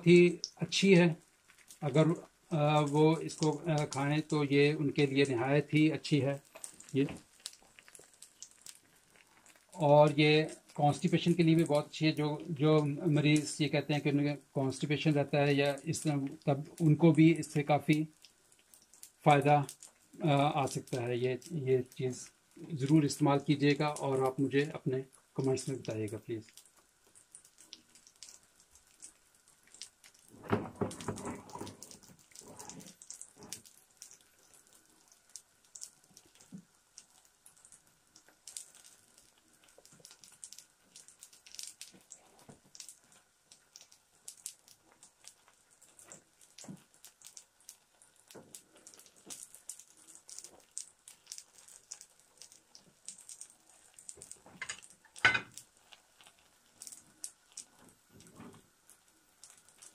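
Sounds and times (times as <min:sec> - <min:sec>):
batter frying in oil: 0:00.0 - 0:59.9.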